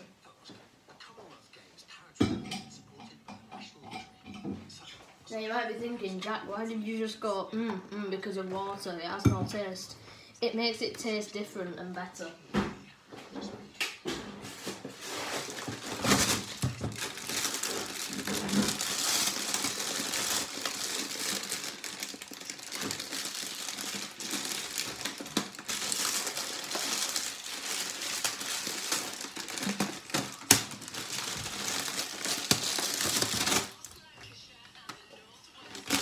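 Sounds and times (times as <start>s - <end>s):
plastic bag crinkling: 14.9s - 34.2s, 35.6s - 36.0s.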